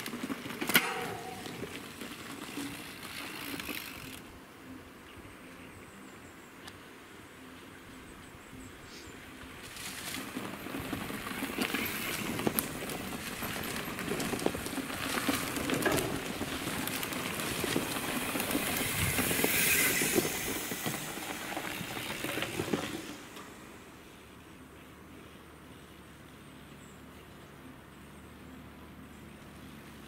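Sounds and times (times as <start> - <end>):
bike tyres crunching over dirt: 0.0 - 4.2, 9.0 - 24.3
bikes rattling and clicking: 0.0 - 4.4, 9.4 - 24.6.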